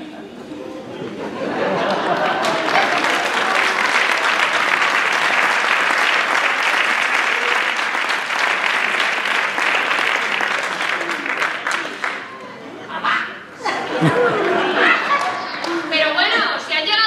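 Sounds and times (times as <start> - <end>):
audience applauding: 1.6 - 12.5, 14.3 - 15.9.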